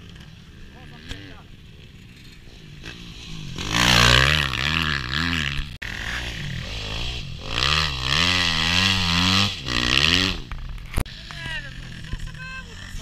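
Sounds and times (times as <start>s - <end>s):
motorbike engines revving: 0.0s - 13.0s.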